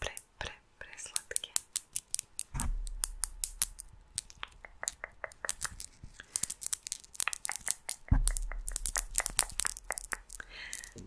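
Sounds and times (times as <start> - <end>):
low thump: 2.5 - 3.8.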